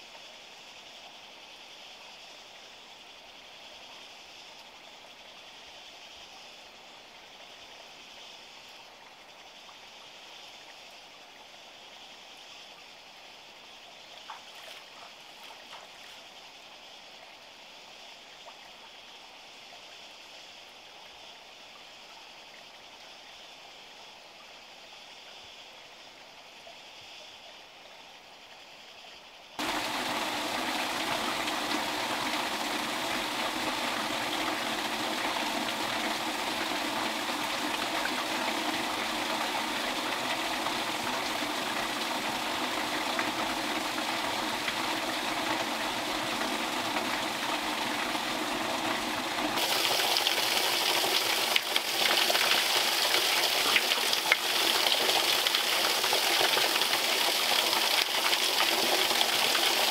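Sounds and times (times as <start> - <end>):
water running: 29.6 - 59.9
water rushing into drain shaft: 29.6 - 59.9.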